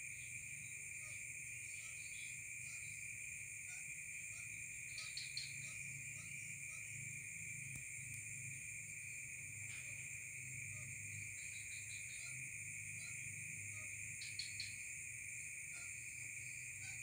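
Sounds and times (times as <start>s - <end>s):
insects trilling: 0.0s - 17.0s.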